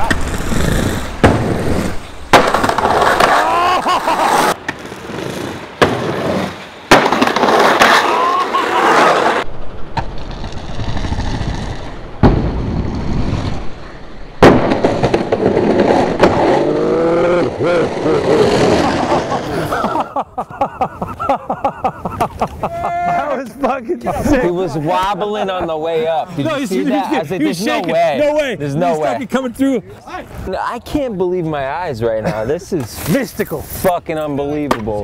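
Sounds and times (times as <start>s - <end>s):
skateboard wheels rolling: 0.0s - 20.0s
skateboard slamming down: 1.2s - 3.6s, 4.3s - 13.6s, 14.4s - 16.7s.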